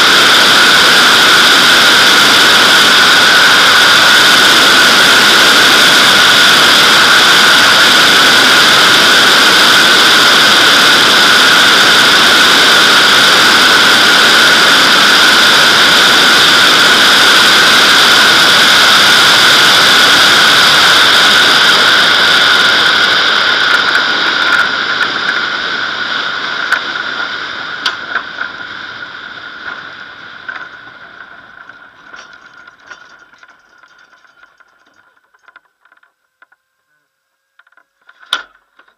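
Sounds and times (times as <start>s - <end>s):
rushing airstream with whistling hum: 0.0s - 36.0s
knocks and rattles rolling on grass: 29.6s - 36.6s.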